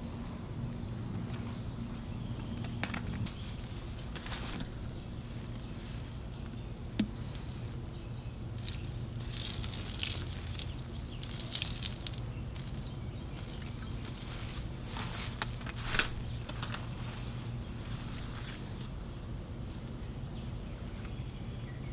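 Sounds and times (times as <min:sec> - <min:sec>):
low background hum: 0:00.0 - 0:21.9
liquid splashing onto grass: 0:08.6 - 0:13.8.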